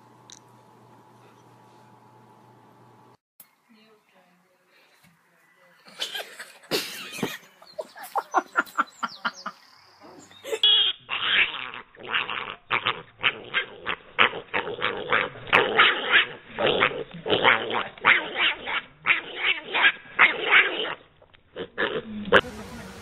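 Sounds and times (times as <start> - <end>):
piglet grunting: 10.4 - 22.4.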